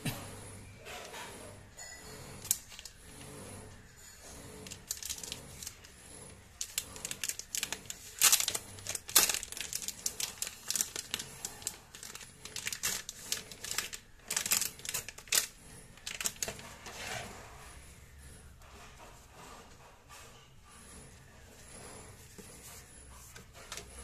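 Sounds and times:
cardboard and foil wrapper crinkling: 2.4s - 3.0s, 4.6s - 5.9s, 6.6s - 17.2s.

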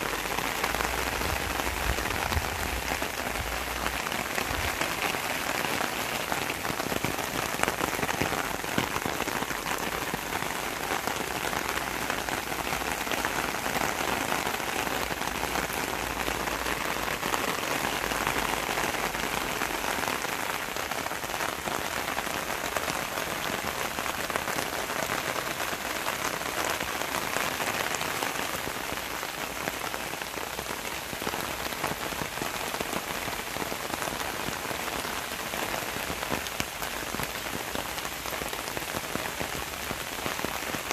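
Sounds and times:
rain falling on leaves: 0.0s - 40.9s.

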